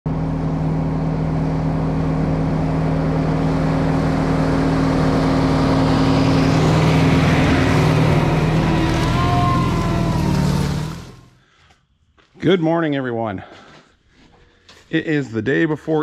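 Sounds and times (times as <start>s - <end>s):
tractor diesel engine under load: 0.1s - 11.4s.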